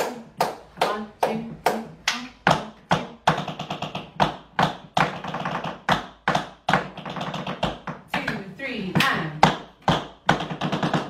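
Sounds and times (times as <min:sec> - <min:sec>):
tap shoes on wooden board: 0:00.0 - 0:11.0.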